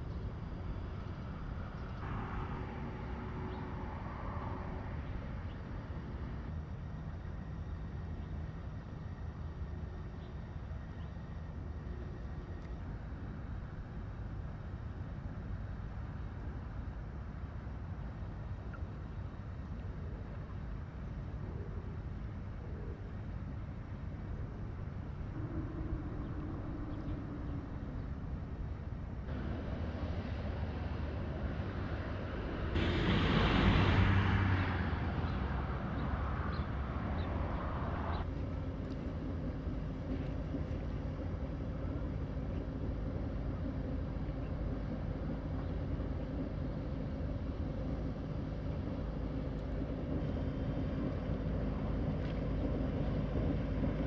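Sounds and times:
boat diesel engine drone: 0.0 - 54.0
rushing noise: 25.0 - 38.3.

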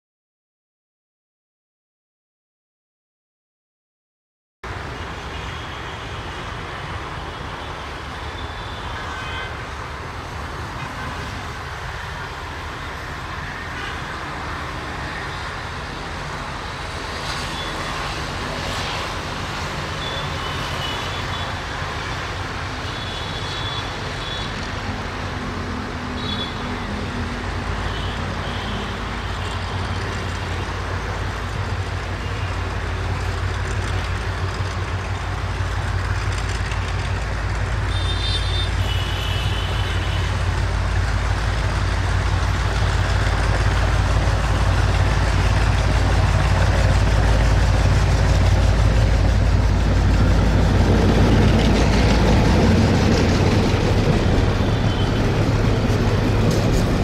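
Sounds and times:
diesel locomotive engine drone: 4.6 - 57.0.

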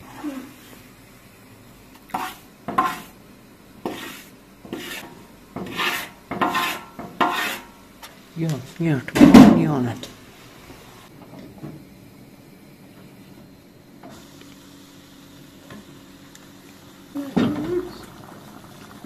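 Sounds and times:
utensil scraping metal cookware: 2.1 - 3.2, 3.8 - 7.8.

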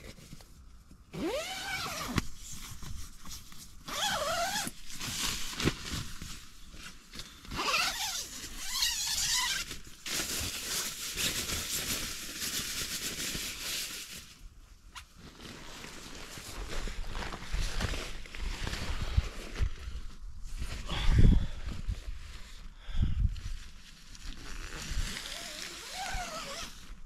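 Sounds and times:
tent zip being pulled open: 1.1 - 2.5, 3.9 - 5.4, 7.4 - 9.8, 24.1 - 27.0.

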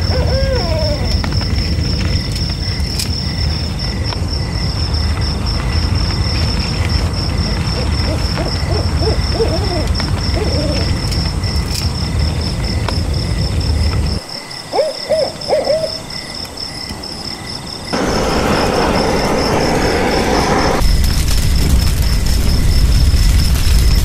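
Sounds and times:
bird hooting: 0.0 - 1.2, 7.6 - 11.0, 14.7 - 16.2
broad hiss: 17.9 - 24.0.

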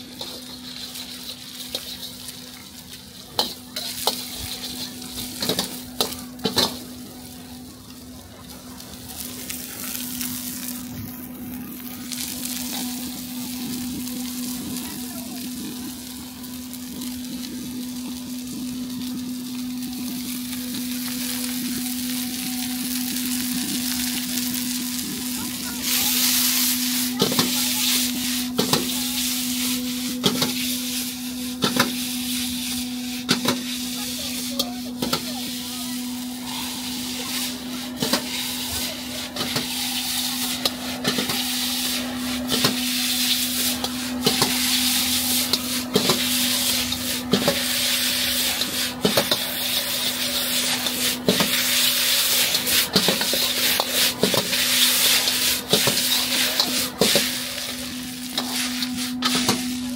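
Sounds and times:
metal spatula scraping wok: 0.0 - 7.0, 25.8 - 59.9
food sizzling in a wok: 0.0 - 59.9.

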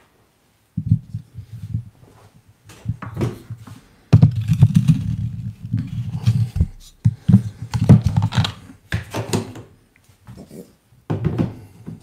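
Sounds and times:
thumps on countertop: 11.1 - 11.6.

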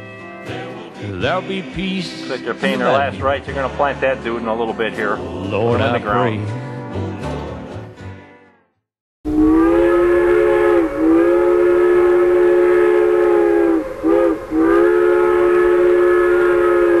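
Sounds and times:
train whistle chord: 9.3 - 17.0.

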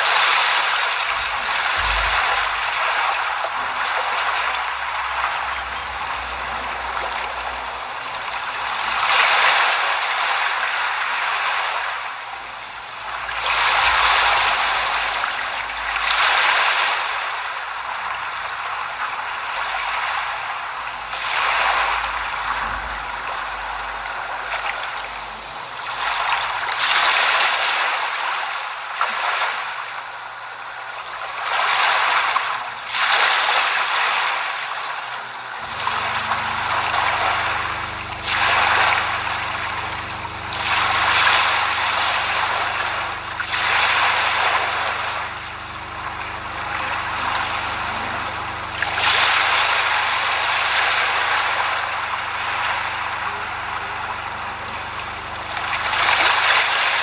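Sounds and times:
sea waves washing onto beach: 0.0 - 57.0
steady low hum: 0.0 - 57.0.

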